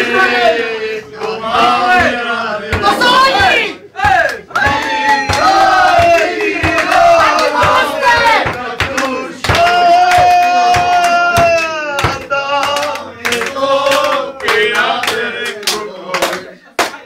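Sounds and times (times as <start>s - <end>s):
men singing together: 0.0s - 16.6s
handclaps: 4.0s - 17.0s.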